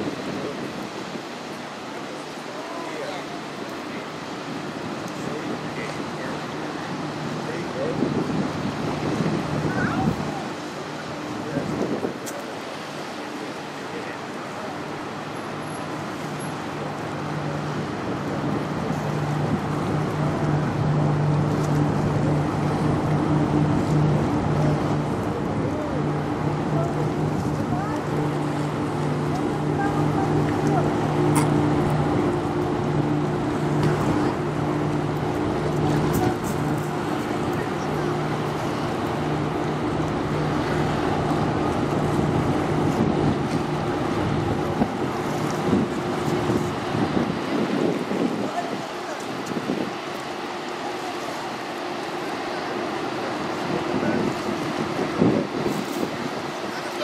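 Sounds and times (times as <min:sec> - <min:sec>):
ship machinery hum: 0:00.0 - 0:57.0
water noise: 0:00.0 - 0:57.0
wind: 0:00.0 - 0:57.0.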